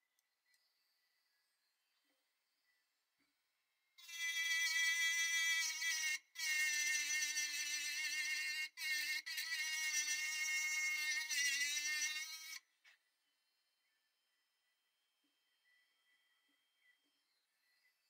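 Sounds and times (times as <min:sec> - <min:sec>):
rotary tool whining: 0:04.0 - 0:12.9.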